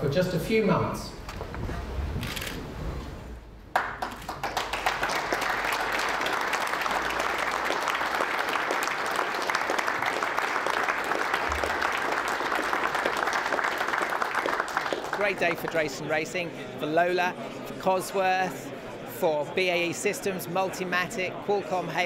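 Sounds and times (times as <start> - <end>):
audience applauding: 3.7 - 16.1.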